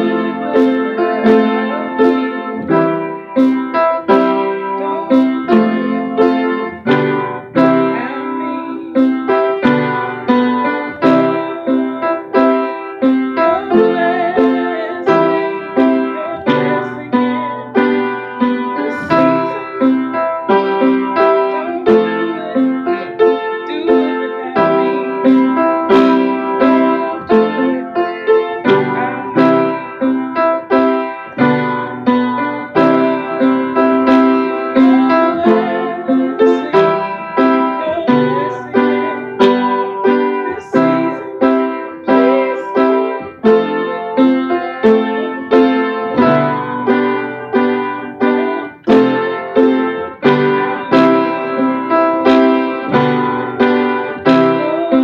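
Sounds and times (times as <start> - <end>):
piano chords: 0.0 - 55.0.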